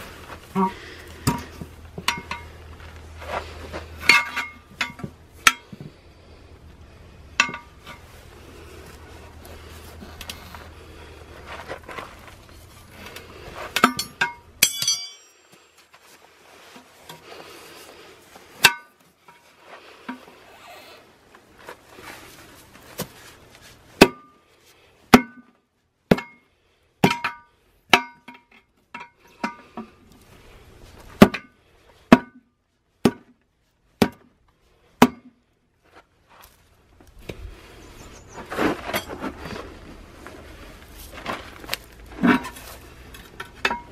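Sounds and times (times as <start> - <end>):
tyre rubbing and scraping: 2.6 - 4.1, 8.1 - 13.8, 19.6 - 23.8, 37.7 - 43.2.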